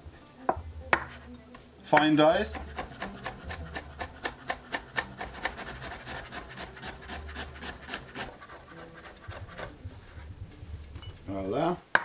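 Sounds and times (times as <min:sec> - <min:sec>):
knife chopping on wooden board: 0:02.0 - 0:09.8.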